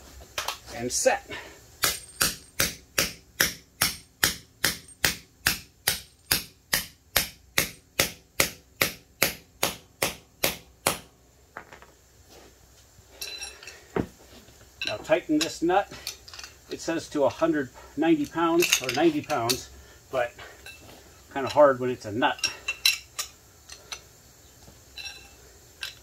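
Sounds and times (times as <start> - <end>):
sledgehammer striking metal tool: 1.8 - 11.0.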